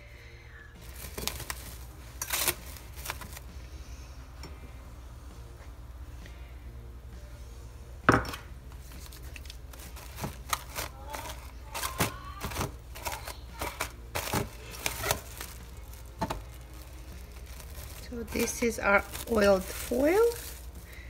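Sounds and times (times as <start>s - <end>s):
plastic cling wrap crinkling: 0.8s - 3.5s, 8.8s - 21.0s.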